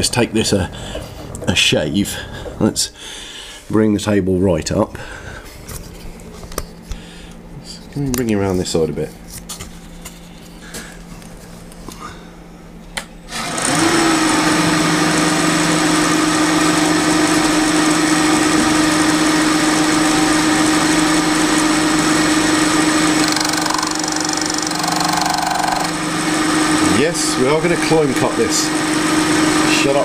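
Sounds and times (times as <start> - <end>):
milling machine cutting: 13.3 - 30.0.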